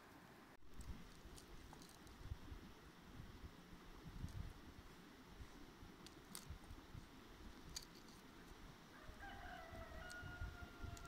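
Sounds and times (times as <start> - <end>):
low wind rumble: 0.6 - 11.0
rooster crowing: 8.9 - 11.0.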